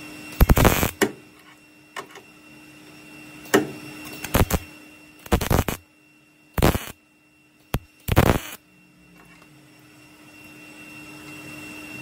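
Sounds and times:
welder bursts: 0:00.4 - 0:01.0, 0:04.2 - 0:04.6, 0:05.2 - 0:05.8, 0:06.6 - 0:07.0, 0:07.7 - 0:08.6.

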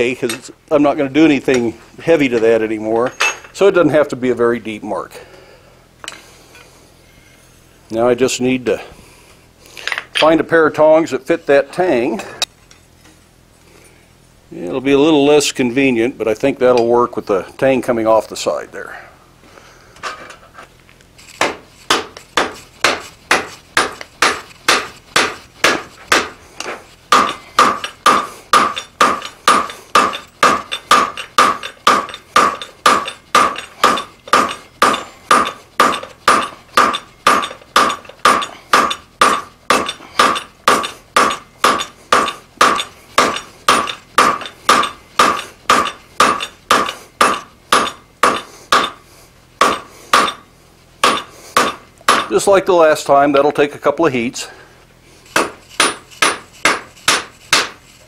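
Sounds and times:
hammer striking steel on anvil: 0:21.4 - 0:49.0, 0:49.6 - 0:50.4, 0:51.0 - 0:52.4, 0:55.4 - 0:57.8.

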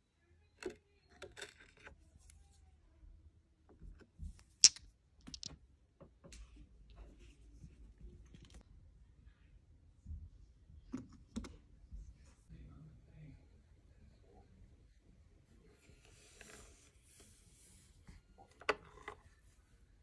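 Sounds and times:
stones clicking together: 0:04.6 - 0:05.6.

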